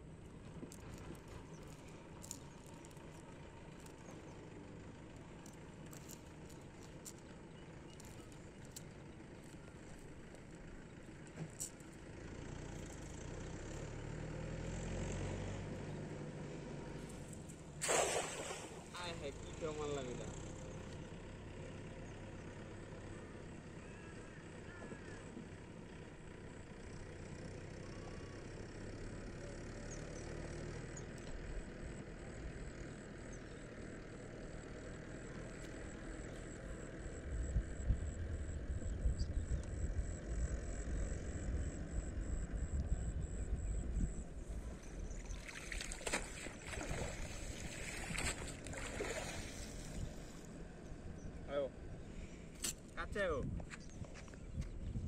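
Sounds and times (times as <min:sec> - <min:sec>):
net hauled through water: 0:00.3 - 0:08.9, 0:17.0 - 0:19.3, 0:44.8 - 0:50.4
water splashing and dripping: 0:17.8 - 0:18.9, 0:45.3 - 0:49.6.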